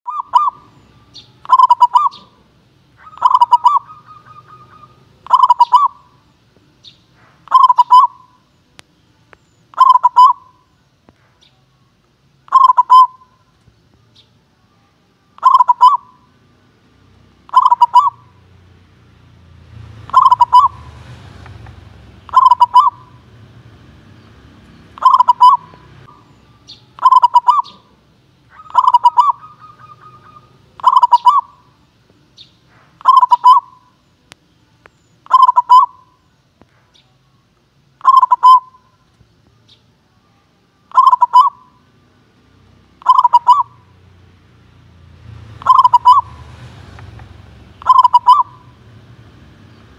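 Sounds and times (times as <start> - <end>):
dove cooing: 0.1 - 0.8, 1.4 - 6.2, 7.4 - 8.4, 9.7 - 10.6, 12.5 - 13.4, 15.4 - 16.3, 17.5 - 18.4, 19.9 - 23.5, 24.8 - 31.7, 32.9 - 34.0, 35.2 - 36.1, 38.0 - 38.9, 40.9 - 41.8, 43.0 - 43.9, 45.5 - 49.0.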